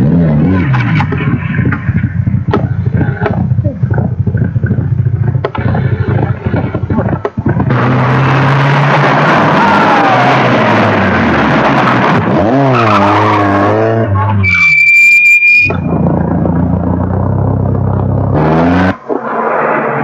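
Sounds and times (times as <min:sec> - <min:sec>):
car at full throttle: 0:00.0 - 0:20.0
rally car engine revving: 0:00.0 - 0:20.0
engine pops and clicks: 0:00.7 - 0:07.7.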